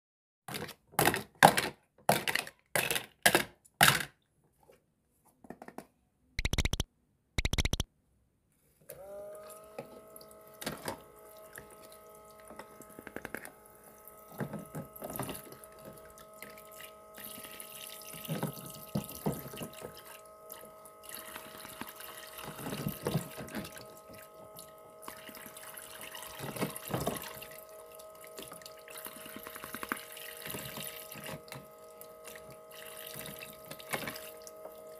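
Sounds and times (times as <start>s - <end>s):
plastic clicks: 6.4s - 6.8s, 7.4s - 7.8s
small water pump motor: 6.4s - 6.8s, 7.4s - 7.8s, 8.9s - 34.9s.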